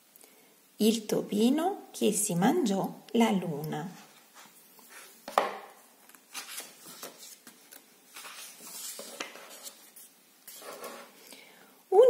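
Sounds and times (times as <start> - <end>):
book pages turning: 4.0 - 11.2.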